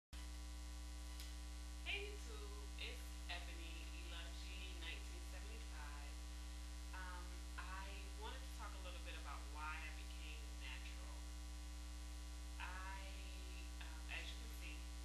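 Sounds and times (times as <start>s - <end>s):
electrical mains hum: 0.2s - 15.0s
woman talking quietly: 1.9s - 6.1s, 7.0s - 11.2s, 12.6s - 14.9s.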